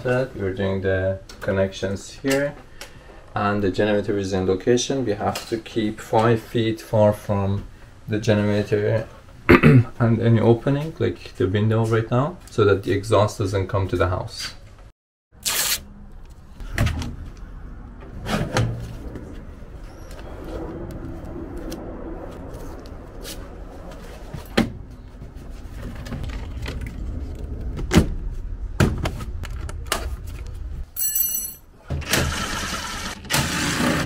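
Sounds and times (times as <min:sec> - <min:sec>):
steady low rumble: 0:16.2 - 0:30.8.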